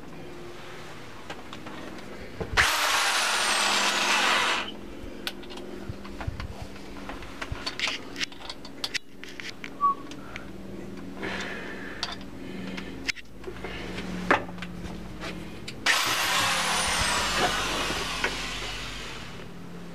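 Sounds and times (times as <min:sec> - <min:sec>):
electric drill running: 0:02.6 - 0:04.8, 0:15.8 - 0:19.6.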